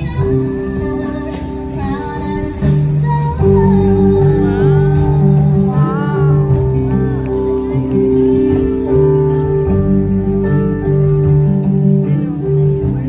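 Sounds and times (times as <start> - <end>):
woman singing: 0.0 - 10.2.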